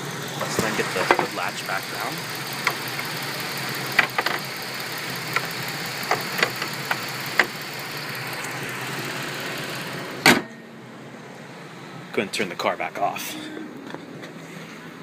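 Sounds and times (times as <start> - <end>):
car engine idling: 0.0 - 12.6
hood clicks and knocks: 0.4 - 1.5, 3.9 - 4.6, 5.2 - 7.6.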